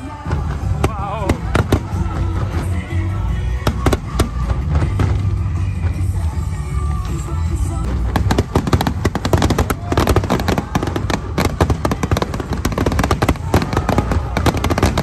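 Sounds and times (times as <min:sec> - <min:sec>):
fireworks bangs and crackles: 0:00.0 - 0:15.0.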